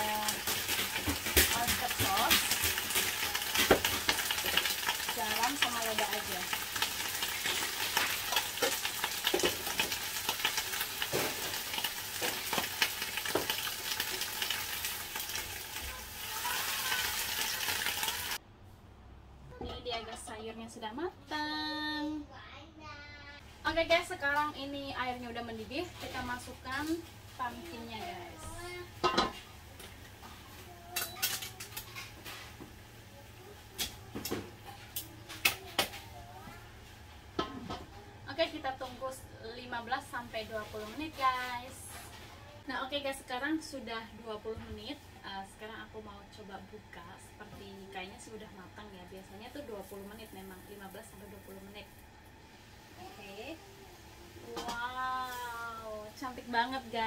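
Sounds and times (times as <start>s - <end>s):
greens sizzling in hot oil: 0.0s - 18.4s, 24.1s - 57.0s
water boiling: 0.0s - 18.4s, 42.6s - 57.0s.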